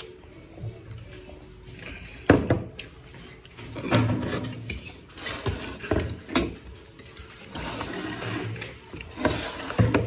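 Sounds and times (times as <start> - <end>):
metal spoon scraping ceramic plate: 3.8 - 10.0.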